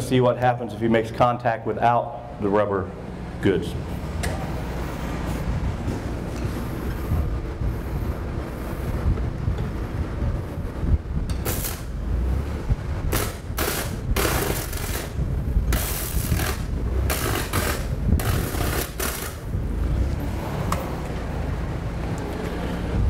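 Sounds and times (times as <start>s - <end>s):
electric arcing bursts: 11.4s - 12.0s, 13.0s - 19.5s.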